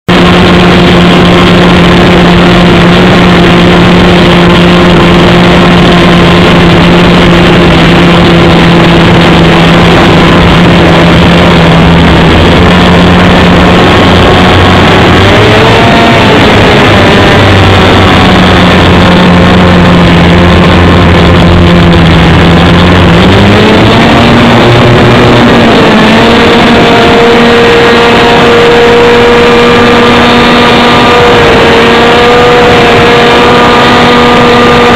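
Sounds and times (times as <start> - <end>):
light aircraft engine running: 0.1 - 34.9.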